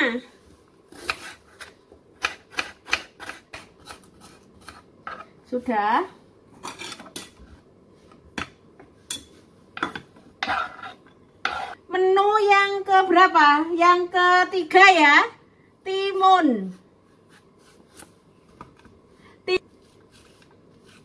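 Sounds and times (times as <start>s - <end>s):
knife chopping on cutting board: 0.9s - 5.2s.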